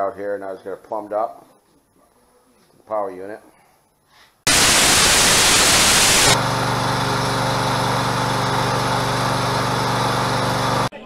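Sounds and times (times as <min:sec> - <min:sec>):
static hiss: 0:04.5 - 0:06.4
hydraulic power unit droning: 0:04.5 - 0:10.9.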